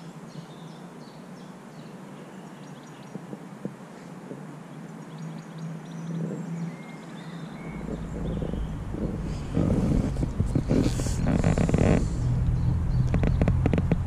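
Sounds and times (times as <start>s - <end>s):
faint bird chirps: 0.0s - 13.5s
steady low hum: 3.2s - 14.0s.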